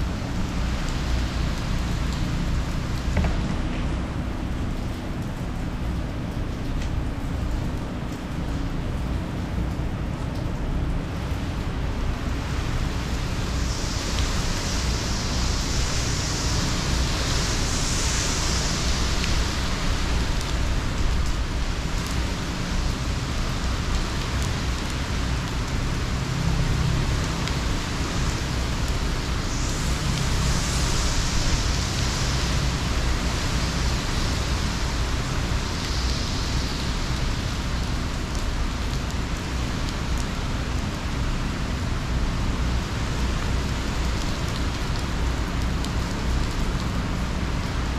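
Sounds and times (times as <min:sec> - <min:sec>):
heavy rain rushing: 0:00.0 - 0:47.9
gusting wind: 0:25.8 - 0:47.9.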